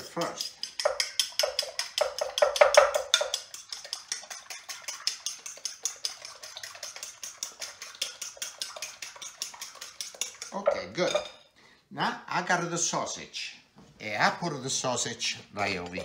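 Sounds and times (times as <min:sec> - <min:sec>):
fork beating eggs in bowl: 0:00.0 - 0:11.4, 0:15.7 - 0:16.0.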